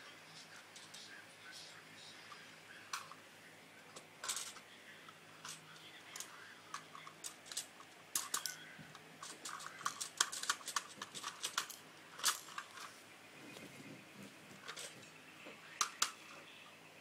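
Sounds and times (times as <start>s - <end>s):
plastic bricks clicking: 6.2s - 12.9s.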